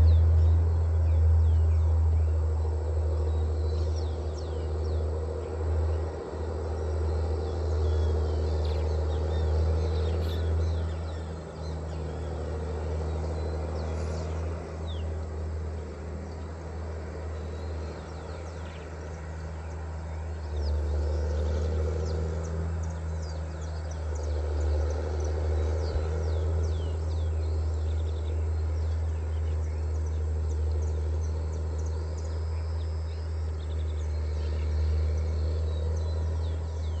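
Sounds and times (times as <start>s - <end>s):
birds chirping: 0.0s - 37.0s
machinery engine drone: 0.0s - 37.0s.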